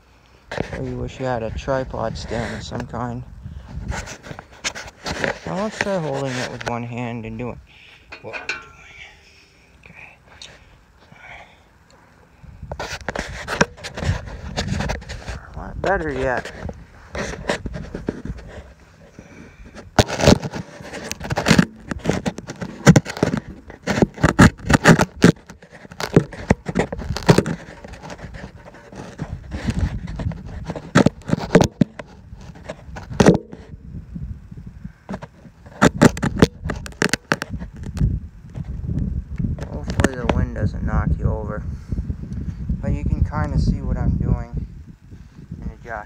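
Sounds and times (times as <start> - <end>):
phone handling noise: 19.7 - 33.8, 35.1 - 38.0.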